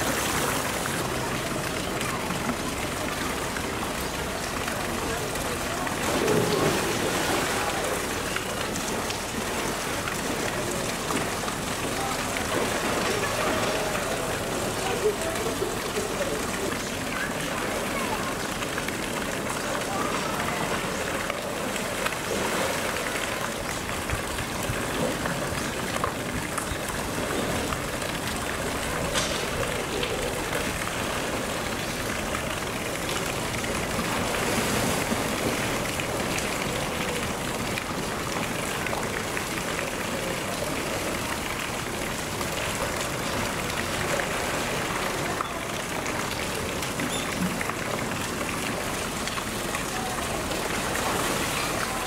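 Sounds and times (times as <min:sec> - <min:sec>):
water splashing: 0:00.0 - 0:52.0.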